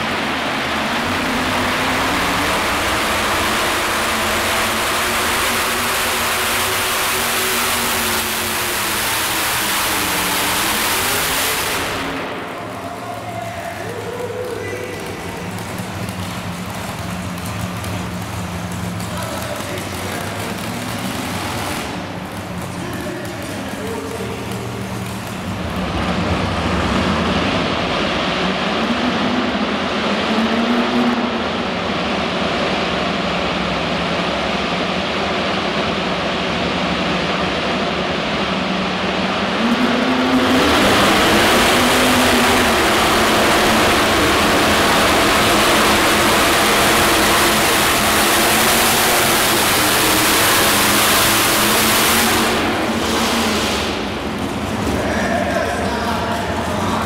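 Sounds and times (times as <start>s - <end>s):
tractor engine revving: 0.0s - 57.0s.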